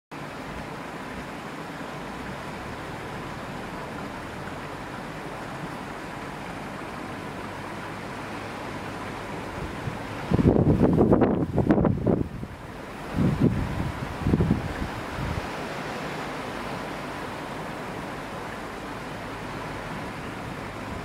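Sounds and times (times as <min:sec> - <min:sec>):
wind gusts hitting microphone: 0:07.7 - 0:21.0
strong wind rushing: 0:09.4 - 0:17.6.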